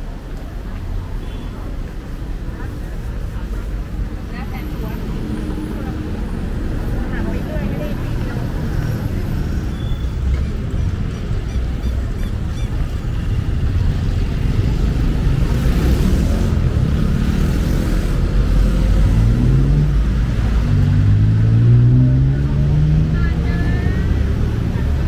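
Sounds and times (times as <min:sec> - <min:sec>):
low traffic rumble: 0:00.0 - 0:25.0
vehicle engine revving: 0:13.8 - 0:25.0.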